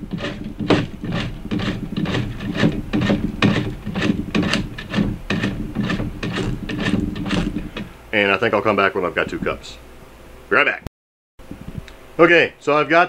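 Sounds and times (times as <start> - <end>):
soap rasping on metal grater: 0.0 - 7.9.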